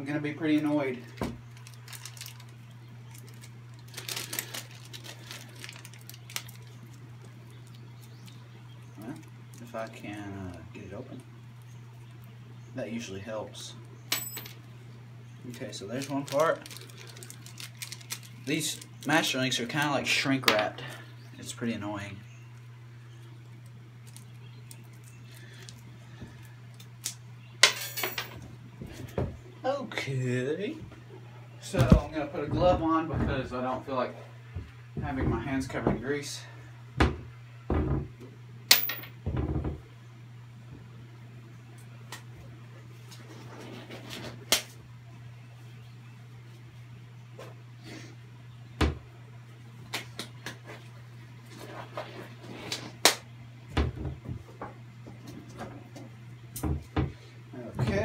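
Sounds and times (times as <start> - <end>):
steady low hum: 0.0 - 58.0
plastic wrapper crinkling and clicking: 1.5 - 8.4, 16.0 - 19.2.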